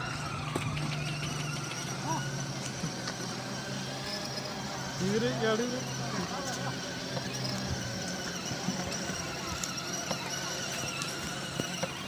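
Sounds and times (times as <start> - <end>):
distant voices: 0.0 - 12.0.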